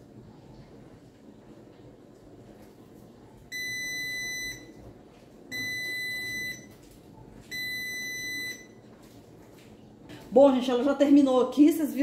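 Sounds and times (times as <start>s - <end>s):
washing machine beeping: 3.2s - 9.2s.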